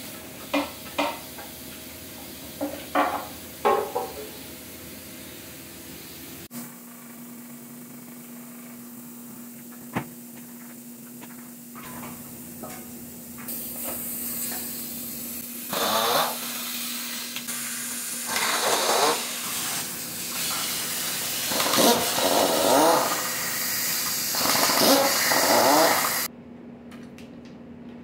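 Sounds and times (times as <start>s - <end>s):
air hissing: 13.5s - 26.3s.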